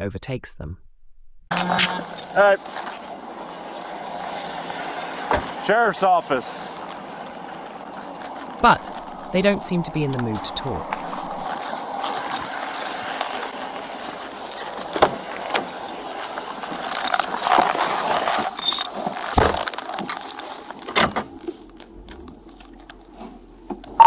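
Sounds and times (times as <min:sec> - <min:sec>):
camera rubbing and jangling gear: 0:01.5 - 0:03.6, 0:06.7 - 0:24.0.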